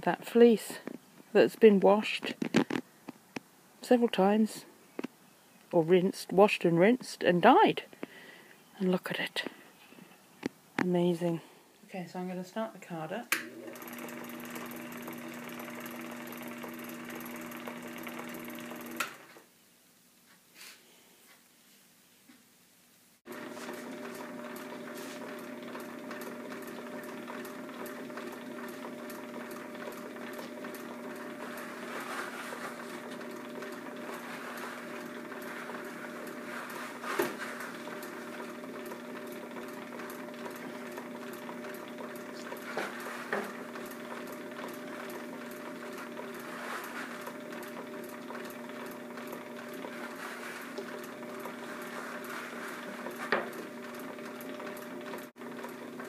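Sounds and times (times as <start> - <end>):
drum carder motor humming: 13.4 - 19.4, 23.3 - 56.0.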